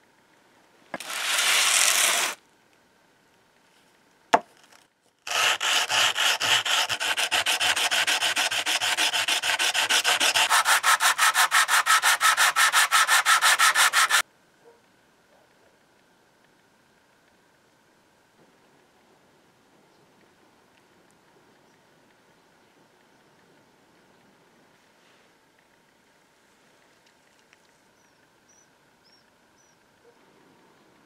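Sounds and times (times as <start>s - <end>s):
iron plate sanding on sandpaper: 1.0s - 2.4s, 5.3s - 14.2s
metal scrape: 1.0s - 2.4s.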